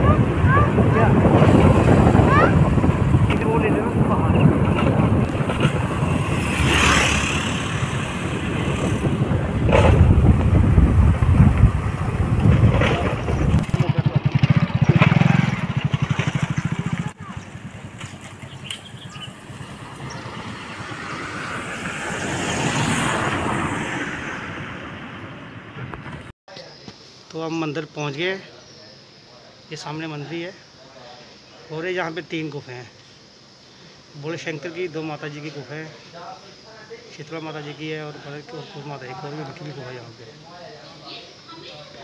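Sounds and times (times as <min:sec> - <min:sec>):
wind noise on microphone: 0:00.0 - 0:14.9
motor scooter engine passing: 0:00.0 - 0:25.7
outdoor hiss: 0:26.5 - 0:42.0.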